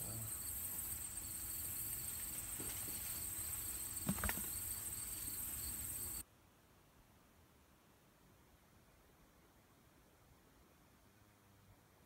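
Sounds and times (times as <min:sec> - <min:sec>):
insect chorus drone: 0:00.0 - 0:06.2.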